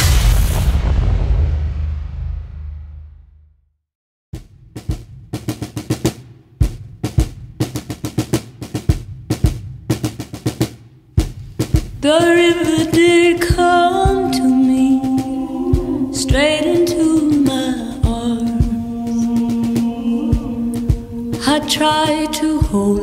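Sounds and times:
drum and percussion beat: 4.4 - 23.0
held melody: 12.1 - 23.0.

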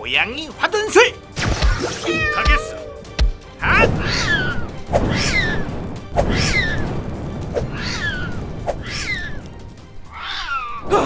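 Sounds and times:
music: 0.0 - 11.0
cat meows falling in pitch: 1.9 - 3.2.

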